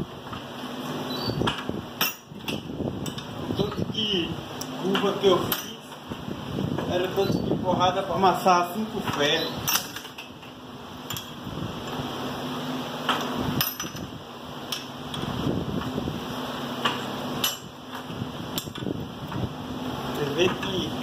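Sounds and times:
steady low hum: 0:00.0 - 0:21.0
sharp metallic clanks: 0:01.4 - 0:03.8, 0:04.9 - 0:05.8, 0:13.1 - 0:14.1, 0:16.8 - 0:17.7.

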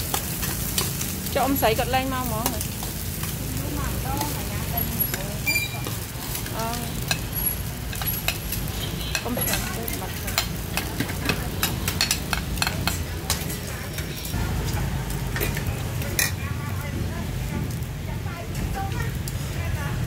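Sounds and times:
rice sizzling in a wok: 0:00.0 - 0:20.0
metal spatula scraping and clicking: 0:00.1 - 0:01.1, 0:04.2 - 0:14.3.

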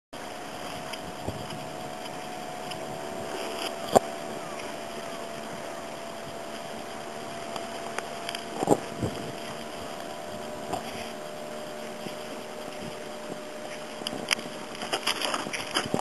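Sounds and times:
steady constant hum: 0:00.2 - 0:16.0
wind on microphone: 0:00.2 - 0:16.0
small clicks: 0:06.2 - 0:11.2.

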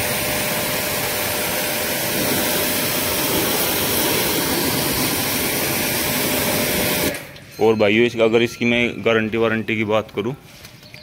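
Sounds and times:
water jet hissing on paving: 0:00.0 - 0:07.2
pressure washer motor hum: 0:00.0 - 0:07.4.

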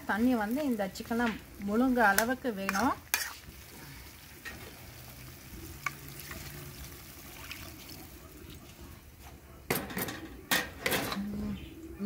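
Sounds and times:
food sizzling in pan: 0:00.0 - 0:09.1
water poured into hot pan: 0:03.4 - 0:08.9.

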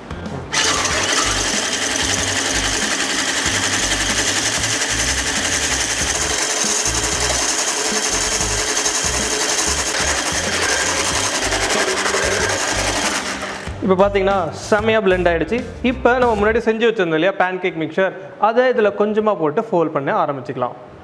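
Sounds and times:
electric hand mixer whipping: 0:00.5 - 0:13.8.

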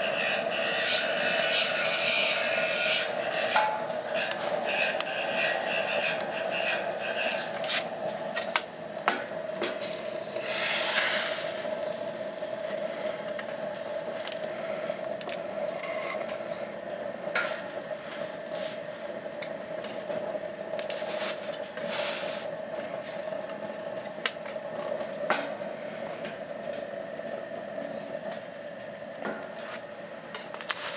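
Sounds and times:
long scraping rushes: 0:00.0 - 0:08.6, 0:09.6 - 0:16.2
blower humming: 0:00.0 - 0:30.9.

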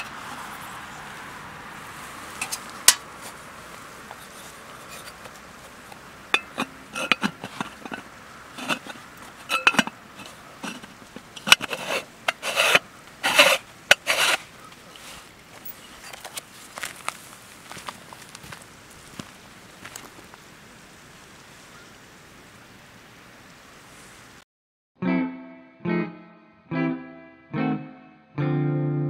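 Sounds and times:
rasping rubbing strokes: 0:04.0 - 0:15.3
objects knocking and scraping: 0:04.0 - 0:16.4.

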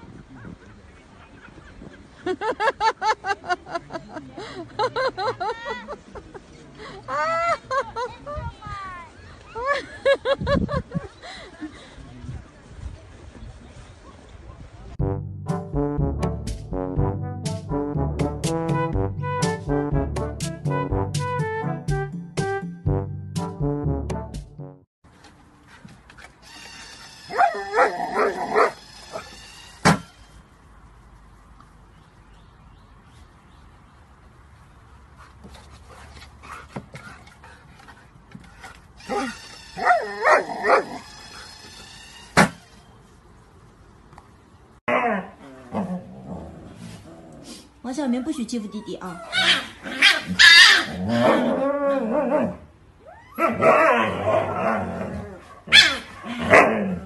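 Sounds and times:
dog yipping: 0:27.3 - 0:29.2, 0:39.0 - 0:41.0, 0:48.6 - 0:50.9, 0:55.7 - 0:56.1.

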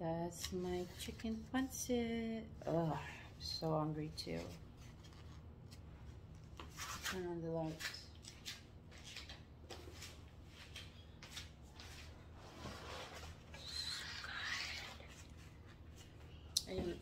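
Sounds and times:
low steady hum: 0:00.0 - 0:17.0
chair scraping and clothing rustling: 0:08.4 - 0:13.6.

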